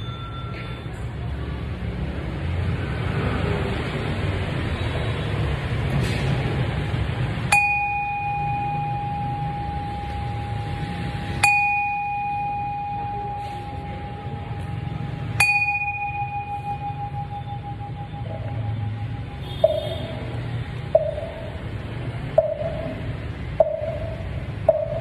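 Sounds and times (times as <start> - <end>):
bowl bell ringing: 0.0 - 0.9, 7.5 - 21.6.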